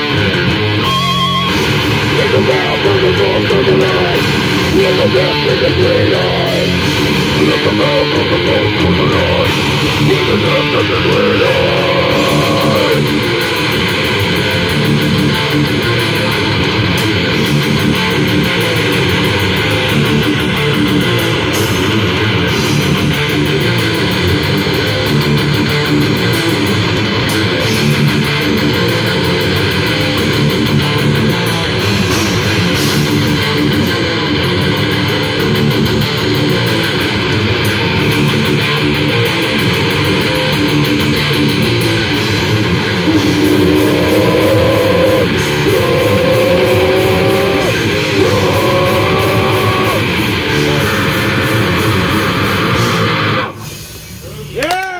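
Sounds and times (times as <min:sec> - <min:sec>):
metal band playing: 0:00.0 - 0:54.7
person singing: 0:00.8 - 0:13.2, 0:43.0 - 0:53.2.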